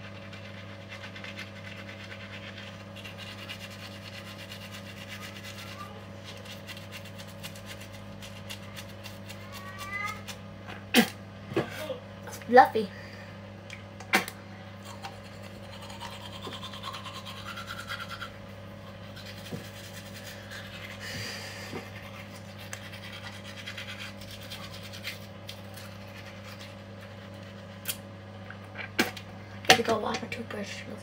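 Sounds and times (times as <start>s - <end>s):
toothbrush scrubbing teeth: 0.0s - 10.4s, 14.8s - 28.0s
steady low hum: 0.0s - 31.0s.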